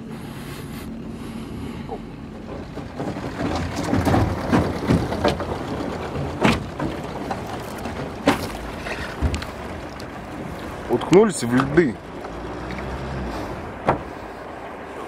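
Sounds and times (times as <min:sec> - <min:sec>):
lake ice crunching and cracking: 0:02.3 - 0:13.5.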